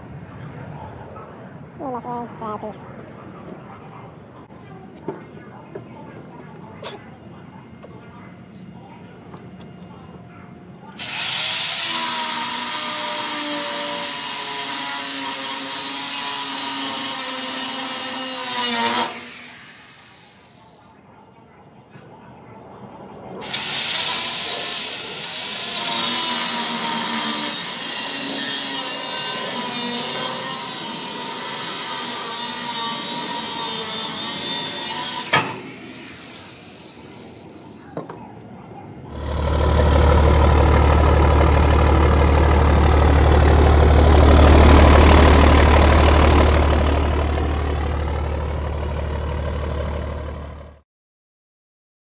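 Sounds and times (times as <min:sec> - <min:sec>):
power tool cutting metal: 0:11.0 - 0:20.9, 0:23.4 - 0:37.8, 0:39.1 - 0:48.2
sharp metal clank: 0:35.3 - 0:35.7.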